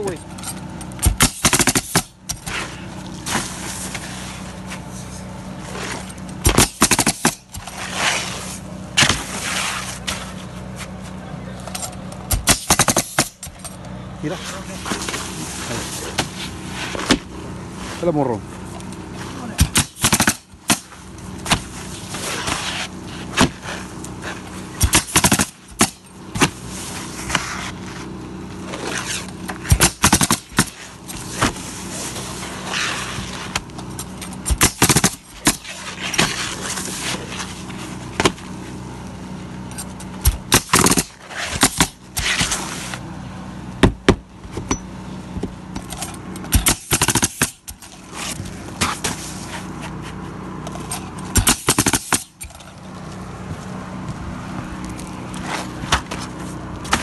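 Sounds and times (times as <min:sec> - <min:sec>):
steady low hum: 0:00.0 - 0:57.0
nail gun shots: 0:01.0 - 0:02.1, 0:06.4 - 0:07.4, 0:12.3 - 0:13.5, 0:19.6 - 0:20.9, 0:24.8 - 0:26.0, 0:29.7 - 0:30.7, 0:34.4 - 0:35.6, 0:40.2 - 0:42.5, 0:46.5 - 0:47.7, 0:51.4 - 0:52.3.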